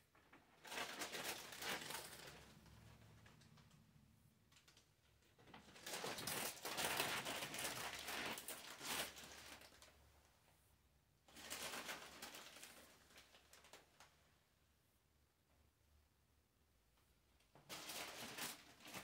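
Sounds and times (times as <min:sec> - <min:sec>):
wrapping material crinkling: 0:00.2 - 0:03.8, 0:04.5 - 0:10.0, 0:11.3 - 0:14.2, 0:17.6 - 0:19.0.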